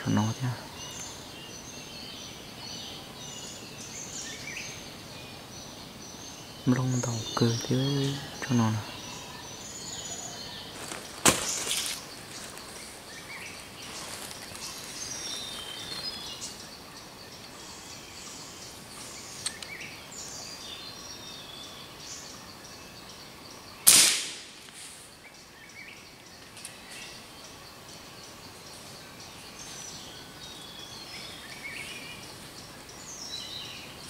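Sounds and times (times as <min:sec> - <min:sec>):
small birds chirping: 0:00.0 - 0:34.0
short sharp crack: 0:11.2 - 0:12.0, 0:23.8 - 0:24.8
air rifle shot: 0:23.8 - 0:24.6.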